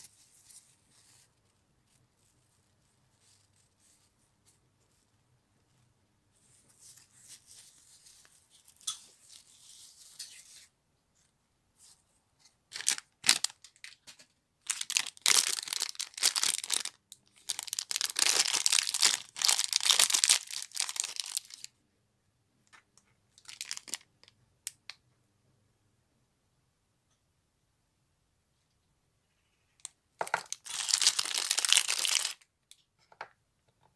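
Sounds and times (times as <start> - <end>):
plastic foil bag tearing and crinkling: 12.7 - 13.9, 14.6 - 21.7, 23.4 - 24.0, 30.4 - 32.4.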